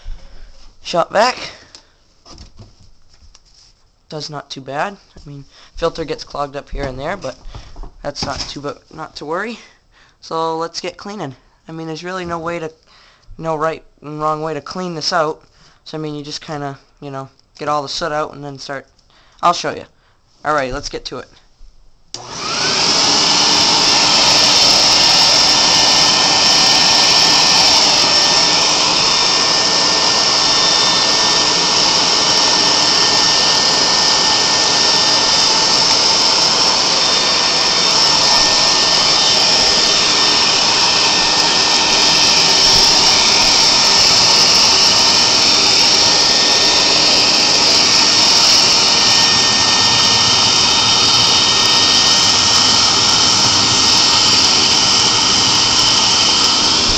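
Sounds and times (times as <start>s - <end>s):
shop vac motor whine: 22.1s - 56.9s.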